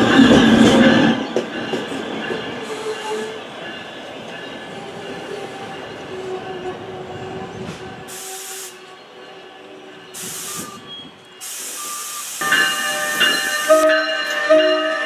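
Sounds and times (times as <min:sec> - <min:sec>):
train wheels rumbling on rail: 0:00.0 - 0:15.0
air hissing: 0:08.1 - 0:08.9, 0:10.2 - 0:13.9.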